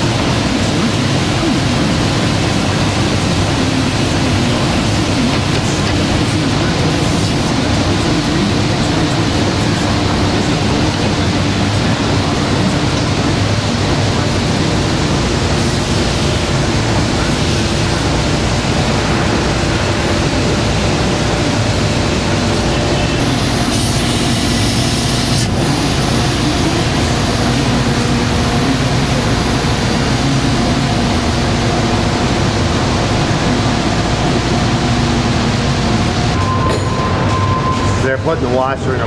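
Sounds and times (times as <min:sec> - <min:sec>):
factory machinery rumble and hum: 0:00.0 - 0:39.0
compressed air blast: 0:22.5 - 0:26.4.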